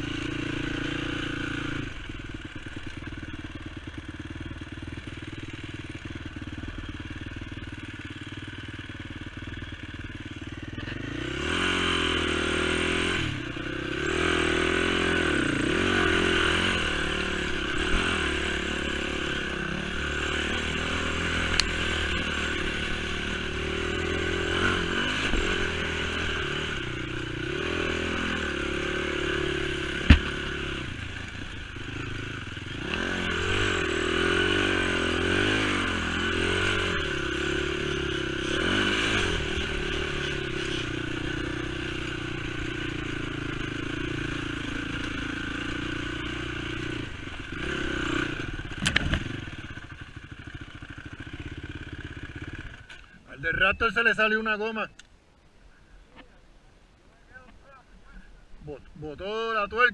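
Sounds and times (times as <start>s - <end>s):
atv engine running: 0.0s - 55.1s
atv clattering over bumps: 14.1s - 32.2s, 32.8s - 53.2s
sharp knock: 30.0s - 30.4s.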